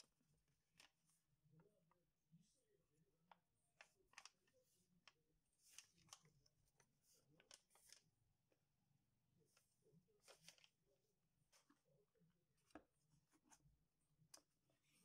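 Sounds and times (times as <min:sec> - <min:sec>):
paper rustling and crinkling: 0:03.6 - 0:08.2, 0:09.5 - 0:10.8.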